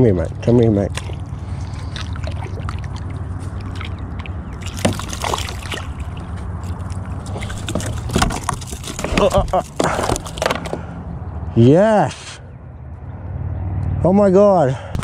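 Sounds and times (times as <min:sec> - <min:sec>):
fish splashing in water: 0:00.8 - 0:10.9.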